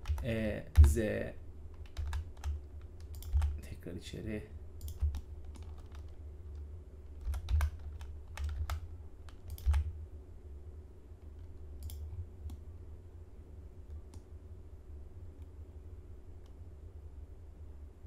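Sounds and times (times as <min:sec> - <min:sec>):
keyboard keys tapping: 0:00.0 - 0:01.0, 0:01.8 - 0:03.6, 0:07.2 - 0:09.9
steady low hum: 0:00.0 - 0:18.0.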